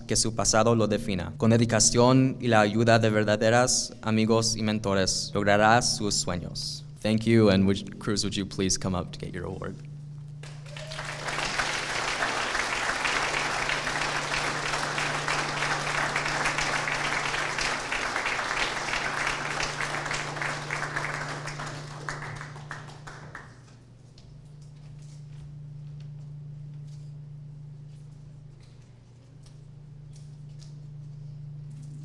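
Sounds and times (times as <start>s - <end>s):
audience applauding: 10.4s - 23.7s.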